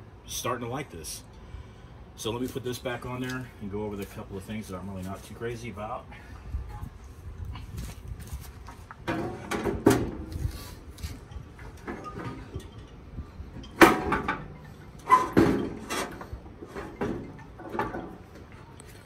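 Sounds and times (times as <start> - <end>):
metal clanks and scrapes: 9.0 - 18.9.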